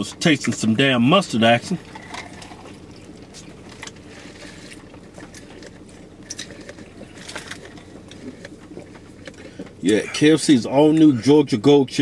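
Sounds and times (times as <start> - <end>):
car interior hum: 0.0 - 12.0
faint clicks and rustles: 1.7 - 9.8.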